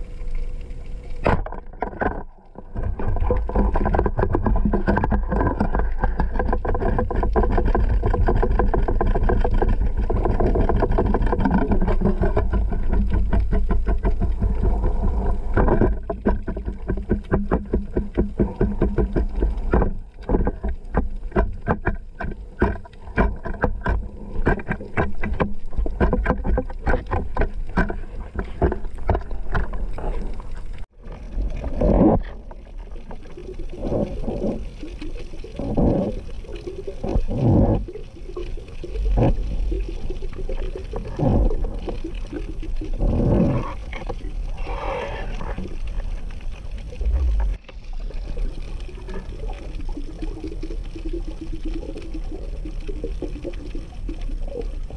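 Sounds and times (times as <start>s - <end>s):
low underwater rumble: 0.0s - 54.9s
rapid irregular clicking: 0.2s - 31.0s
water whoosh: 26.7s - 54.9s.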